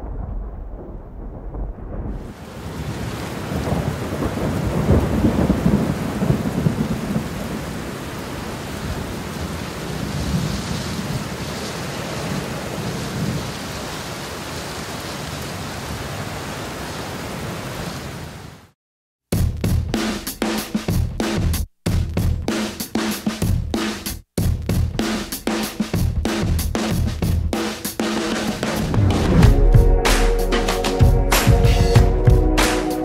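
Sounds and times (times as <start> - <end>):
thunder rumbling: 0.0 - 13.6, 28.2 - 32.7
heavy rain pouring: 0.0 - 18.8, 28.0 - 32.4.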